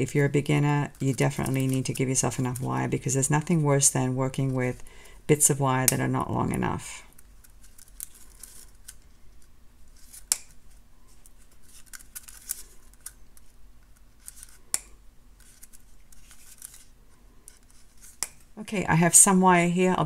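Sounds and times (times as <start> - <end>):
rustling of wire and spool: 0.0 - 18.6.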